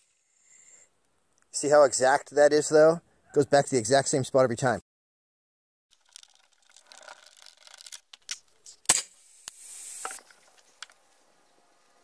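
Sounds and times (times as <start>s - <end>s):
handling rubbing and clicks: 6.0s - 8.9s
short hiss: 8.7s - 10.5s.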